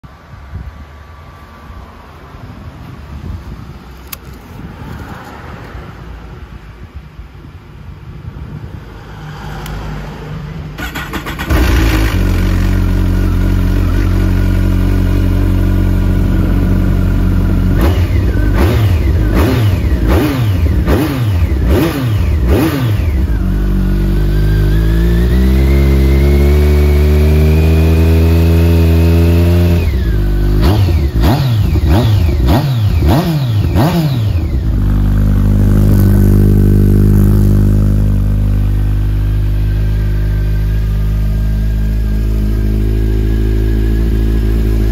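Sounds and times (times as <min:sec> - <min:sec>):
motorcycle engine idling and revving: 0:01.6 - 0:44.9.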